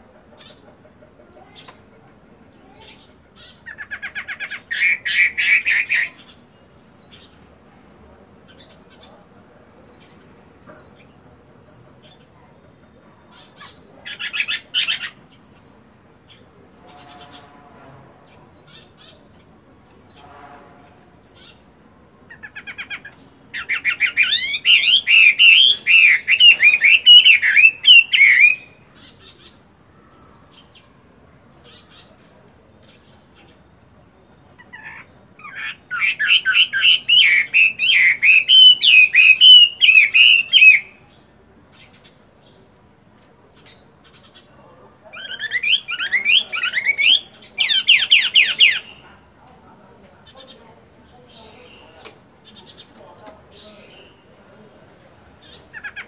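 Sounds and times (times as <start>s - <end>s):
bird rapid varied song: 0.1s - 7.4s, 8.4s - 17.6s, 18.3s - 20.4s, 21.2s - 30.9s, 34.4s - 42.9s, 43.5s - 44.5s, 45.1s - 49.0s.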